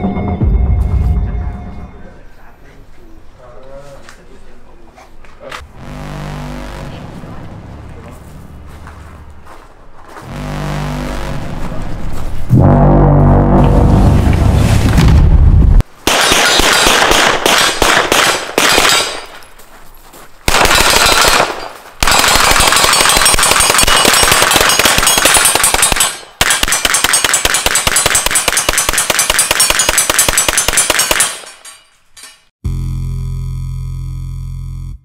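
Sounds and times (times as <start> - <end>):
rapid rifle gunshots: 16.0 - 19.3, 20.5 - 31.4.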